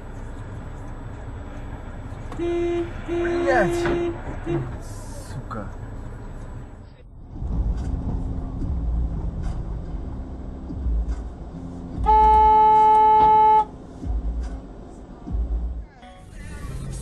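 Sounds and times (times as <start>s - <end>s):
car road and engine rumble: 0.0s - 17.0s
car horn blast: 2.3s - 4.8s, 12.0s - 13.7s.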